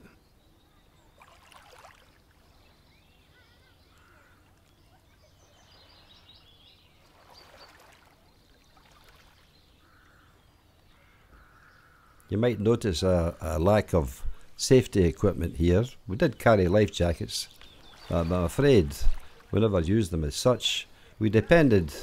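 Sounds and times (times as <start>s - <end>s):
water lapping in shallows: 1.0s - 10.4s, 17.4s - 19.7s.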